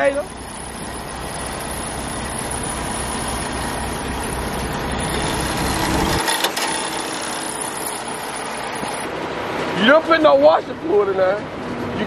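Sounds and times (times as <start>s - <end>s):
diesel engine idling: 0.0s - 9.5s.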